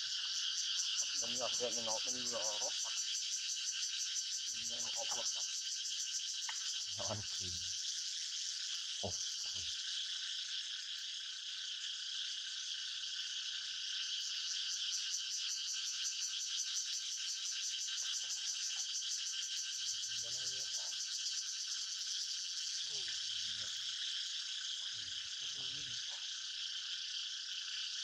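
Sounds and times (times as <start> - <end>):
chorus of calling animals: 0.0 - 3.5, 4.4 - 5.6, 6.9 - 7.8, 19.8 - 21.1, 22.0 - 28.0.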